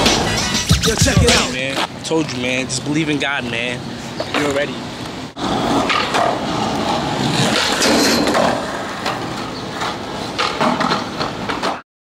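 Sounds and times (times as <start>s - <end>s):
skateboard grinding on concrete: 5.4s - 11.8s
skateboard wheels rolling on asphalt: 5.4s - 11.8s
skateboard clacks: 5.6s - 11.8s.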